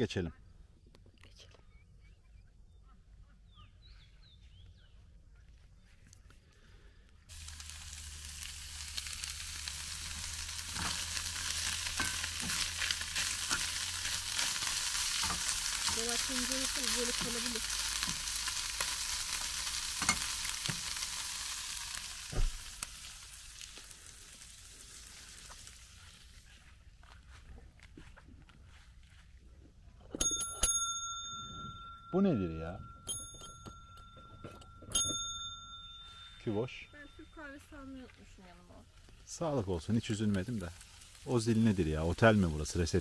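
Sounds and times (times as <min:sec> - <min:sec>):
meat sizzling in a pan: 0:07.3 - 0:26.4, 0:39.3 - 0:43.0.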